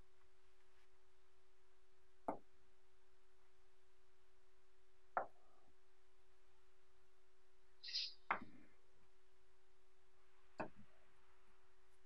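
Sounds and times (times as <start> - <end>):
magnetic balls knocking on table: 5.2 - 5.4.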